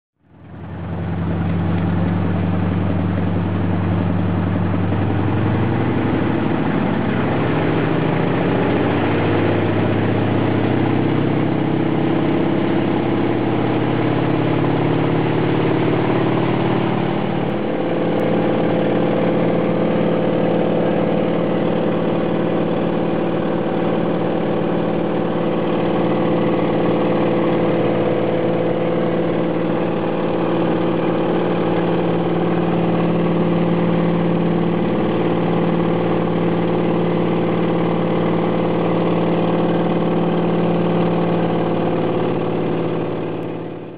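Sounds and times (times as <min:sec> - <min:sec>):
propeller plane engine running: 0:00.2 - 0:43.9.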